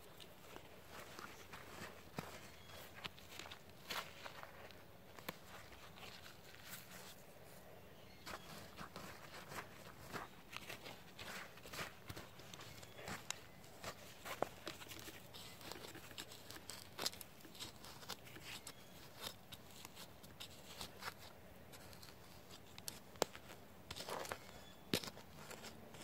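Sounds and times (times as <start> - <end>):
trowel scraping dry soil: 8.0 - 26.0.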